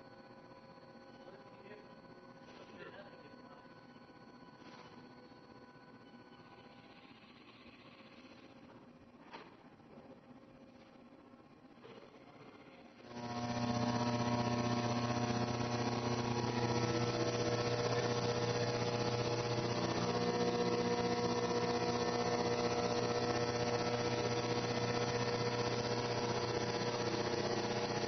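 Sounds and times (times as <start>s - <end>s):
milling machine cutting metal: 13.1s - 28.0s.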